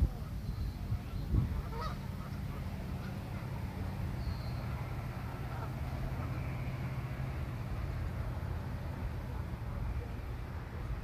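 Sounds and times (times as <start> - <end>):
goose honking: 1.6 - 3.5
faint high chirp: 4.2 - 4.7.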